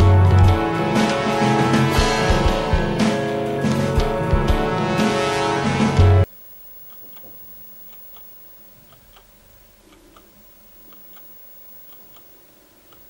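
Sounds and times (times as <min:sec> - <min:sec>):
low steady hum: 0:06.2 - 0:13.0
clock ticking faintly: 0:06.4 - 0:13.0.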